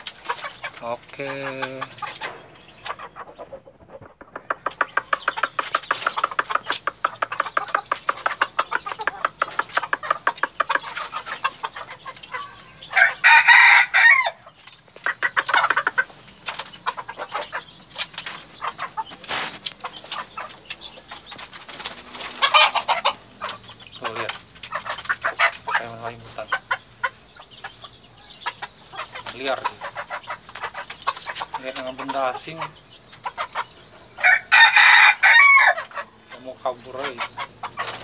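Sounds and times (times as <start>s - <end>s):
rapid short clucks: 0.0s - 12.3s, 14.9s - 33.7s
rooster crowing: 12.9s - 14.4s, 34.2s - 35.8s.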